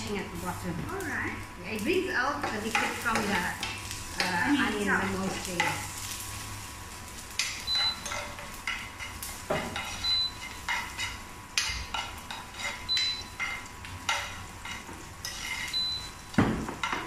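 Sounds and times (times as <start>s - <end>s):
food sizzling in oil: 0.0s - 17.0s
spoon scraping a frying pan: 2.4s - 6.2s, 7.3s - 17.0s.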